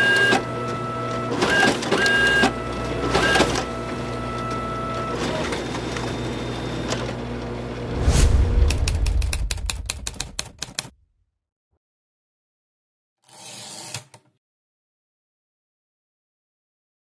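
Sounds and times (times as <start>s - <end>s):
deep low boom: 7.9s - 10.4s
typewriter mechanism whirring: 9.1s - 10.9s, 13.2s - 14.3s.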